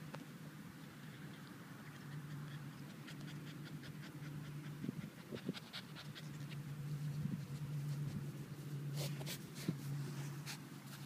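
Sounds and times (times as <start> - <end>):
puppy panting: 1.1 - 8.2.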